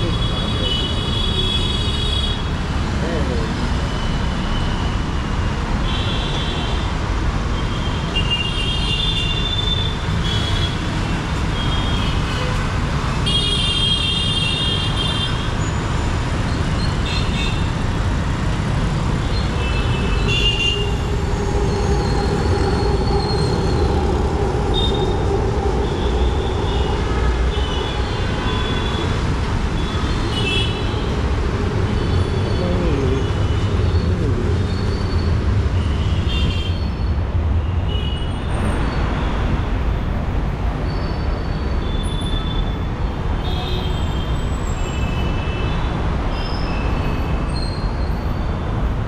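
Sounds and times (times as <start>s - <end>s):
road traffic rumble: 0.0s - 49.0s
metro train humming: 20.7s - 29.0s.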